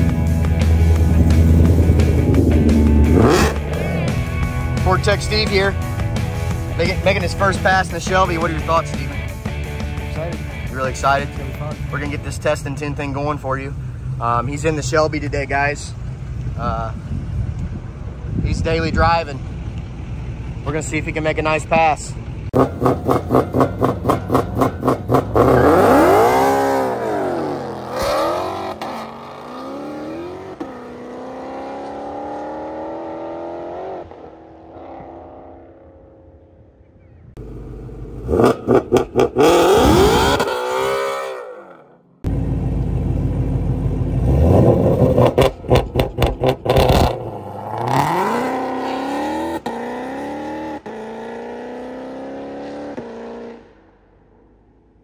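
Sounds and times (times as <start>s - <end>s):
car accelerating away: 0.0s - 4.4s, 22.5s - 36.2s, 37.4s - 53.8s
car engine revving: 0.0s - 14.9s, 22.4s - 36.2s, 37.4s - 54.7s.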